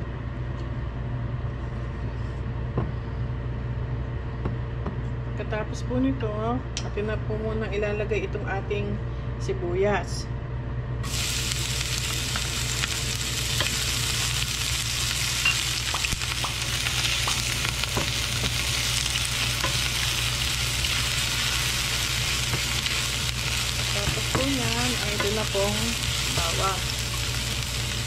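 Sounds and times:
onion sizzling in oil: 11.0s - 28.0s.

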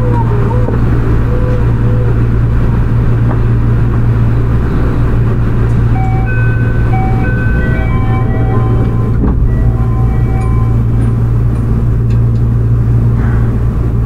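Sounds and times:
subway train rumbling: 0.0s - 14.0s
electronic chime: 5.9s - 11.0s.

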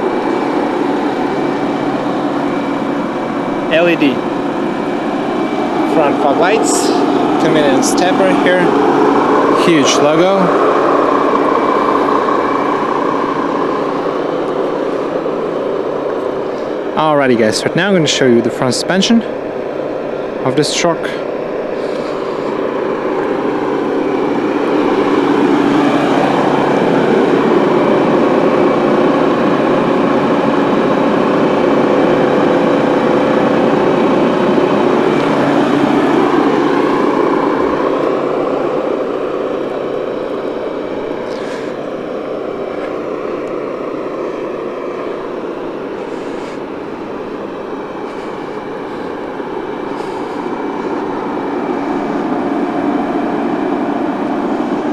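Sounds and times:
diesel truck engine idling: 0.0s - 54.9s.

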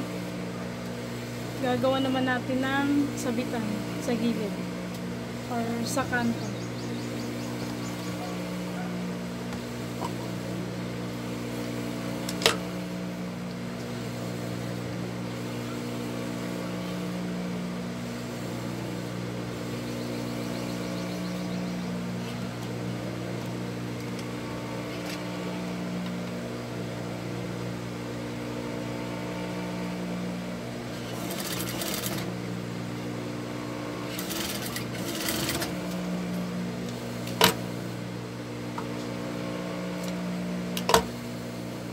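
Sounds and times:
sewing machine running: 31.0s - 32.3s, 34.1s - 35.9s.

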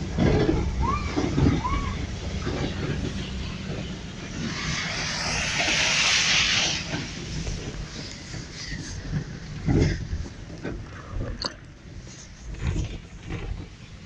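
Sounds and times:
rushing water hiss: 0.0s - 10.0s
vehicle engine rumble: 0.0s - 14.0s.

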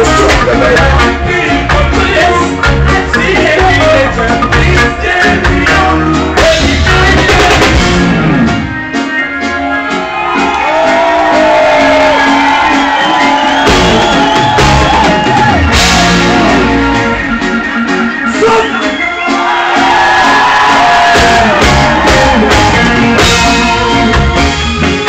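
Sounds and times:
reggae band playing: 0.0s - 25.0s
shouted and sung vocals: 19.3s - 24.2s.

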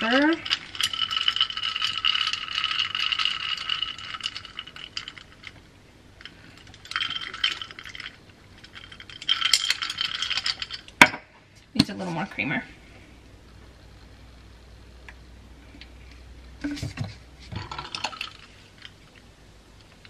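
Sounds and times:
ice clinking in glass jar: 0.0s - 5.6s, 6.2s - 10.9s, 17.6s - 18.9s.

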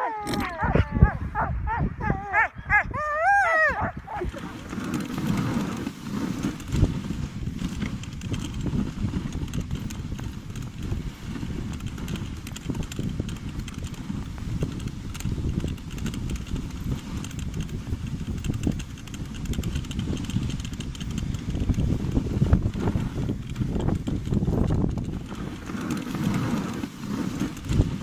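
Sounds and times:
sled runners scraping on snow: 3.5s - 28.0s
dogs' paws pattering: 3.8s - 28.0s.

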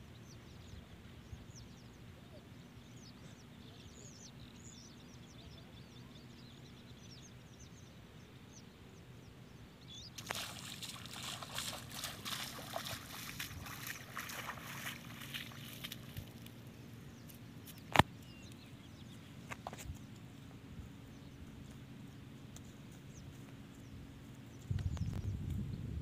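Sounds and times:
small birds chirping: 0.0s - 25.7s
feet wading through shallow water: 10.2s - 18.0s.

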